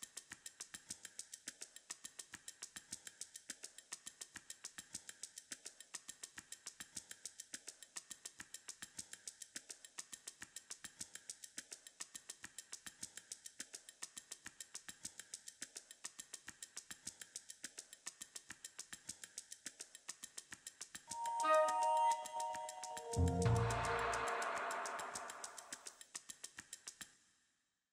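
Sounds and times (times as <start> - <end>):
electronic beat of ticking clicks: 21.1 - 25.8.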